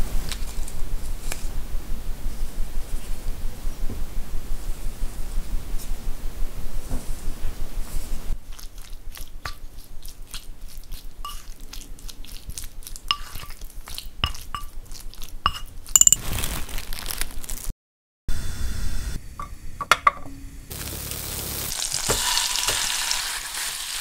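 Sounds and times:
squishing marinade: 7.9s - 15.9s
utensil clinking against bowl: 13.1s - 13.6s, 14.2s - 14.8s, 15.5s - 16.2s, 19.4s - 20.4s
cling film crinkling: 16.1s - 17.7s, 20.7s - 24.0s.

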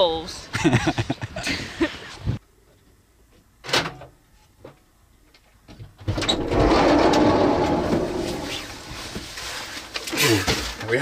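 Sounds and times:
sliding door rolling rattle: 6.0s - 9.6s.

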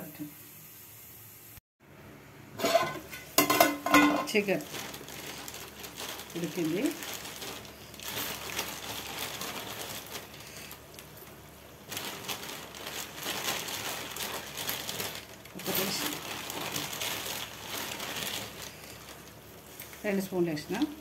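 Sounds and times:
chicken sizzling in a pot: 0.0s - 1.6s.

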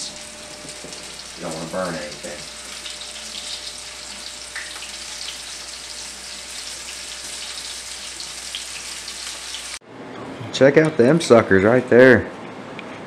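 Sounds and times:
food frying in hot oil: 0.0s - 9.8s.

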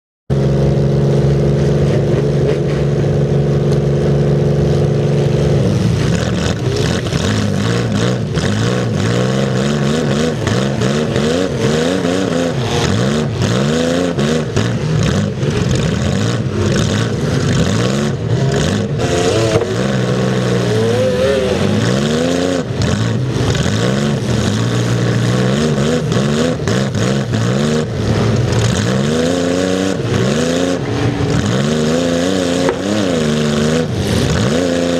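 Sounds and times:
car engine revving: 0.3s - 34.9s.

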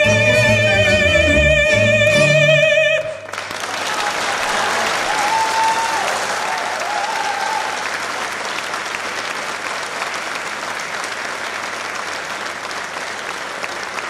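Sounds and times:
audience applauding: 3.2s - 14.0s.

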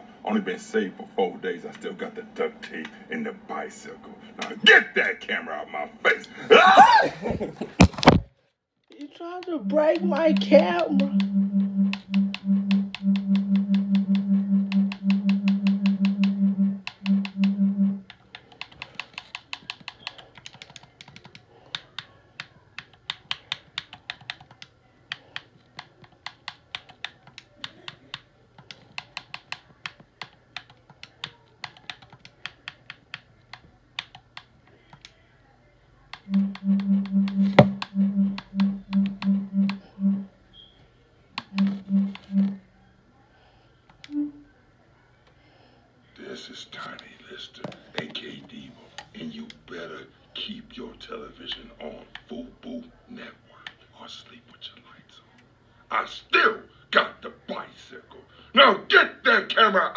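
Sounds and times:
rapid irregular clicks: 9.0s - 22.1s
pulsing low buzz: 10.9s - 18.0s, 36.3s - 40.3s.

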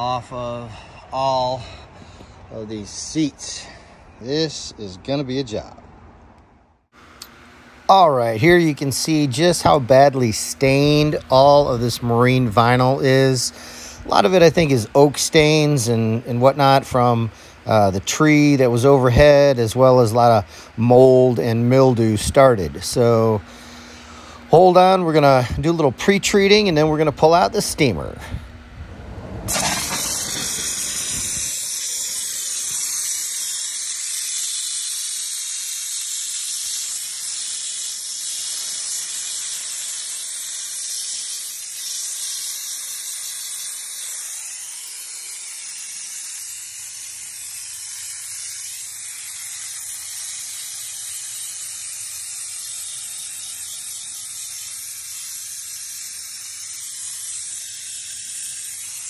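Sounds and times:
steam jet hissing: 29.0s - 59.0s.

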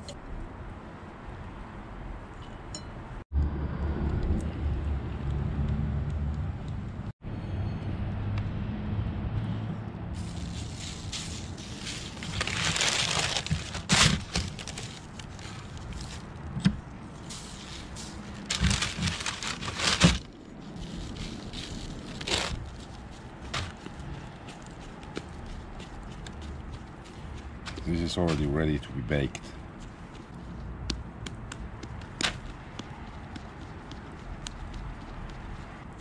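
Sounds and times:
baking paper crinkling: 10.2s - 16.4s, 17.1s - 24.7s.

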